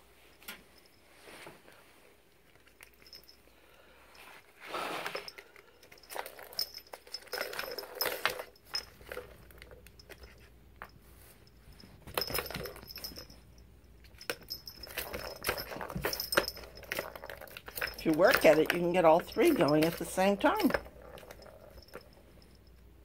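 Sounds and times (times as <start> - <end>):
plastic balls rattling in toy track: 14.3 - 22.1.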